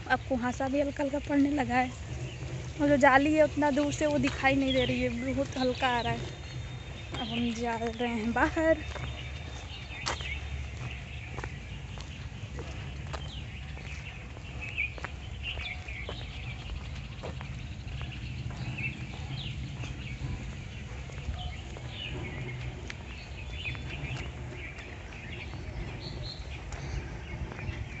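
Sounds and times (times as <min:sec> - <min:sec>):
small birds chirping: 0:00.0 - 0:28.0
steady low rumble: 0:00.0 - 0:28.0.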